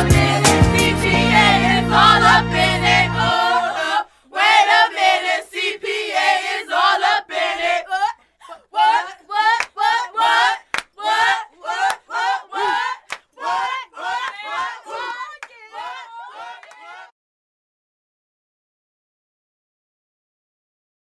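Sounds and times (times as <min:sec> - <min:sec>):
instrumental backing with bass: 0:00.0 - 0:03.5
children's choir singing: 0:00.0 - 0:17.1
hand claps: 0:09.6 - 0:09.8, 0:10.7 - 0:10.9, 0:13.1 - 0:14.8, 0:16.6 - 0:16.9.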